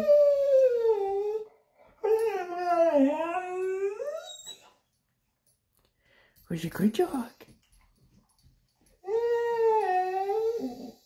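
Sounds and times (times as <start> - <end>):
dog howling: 0.0 - 4.6, 9.0 - 11.0.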